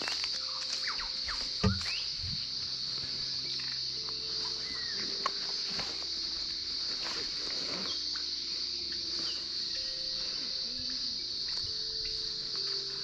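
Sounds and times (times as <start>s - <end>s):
footsteps on leafy dirt track: 0.0s - 10.8s
high-pitched insect chorus: 0.0s - 13.0s.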